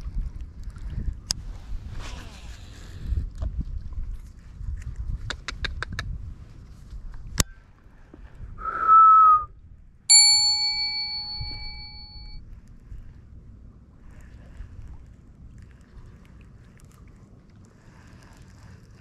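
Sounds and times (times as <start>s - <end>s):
bell-like ding: 10.1s - 12.4s.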